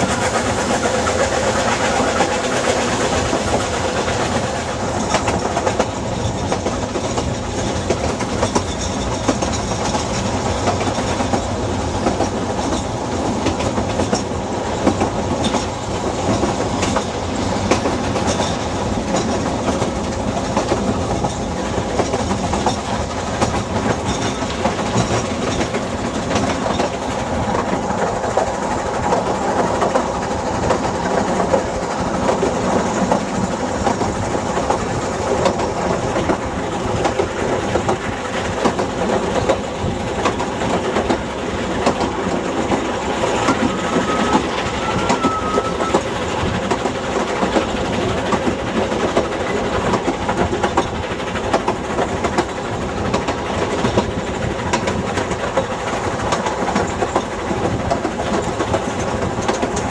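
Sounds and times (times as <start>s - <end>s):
steam locomotive working: 0.0s - 59.9s
train coaches rattling over track: 0.0s - 59.9s
faint squeal: 43.3s - 46.4s.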